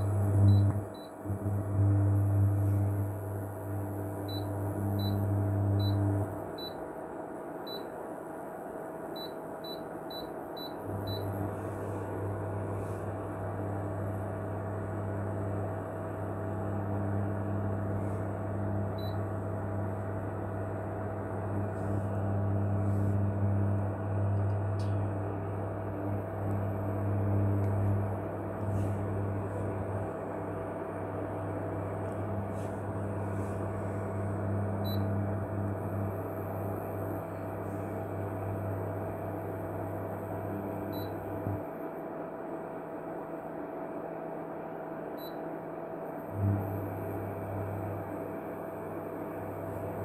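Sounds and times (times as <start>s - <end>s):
low electrical hum: 0.0s - 50.0s.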